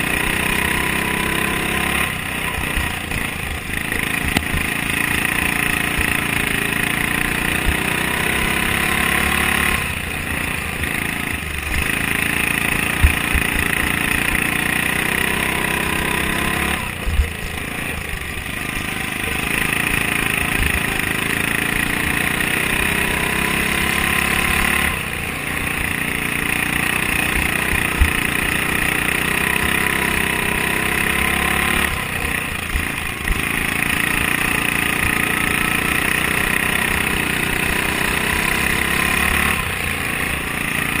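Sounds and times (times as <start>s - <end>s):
lawn mower engine racing: 0.0s - 41.0s
mower thumping over rough track: 0.0s - 41.0s.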